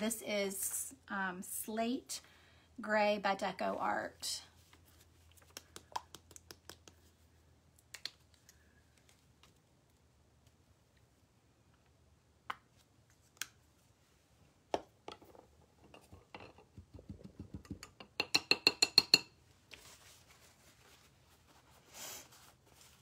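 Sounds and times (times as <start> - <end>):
paper towel rustle: 19.8 - 23.0.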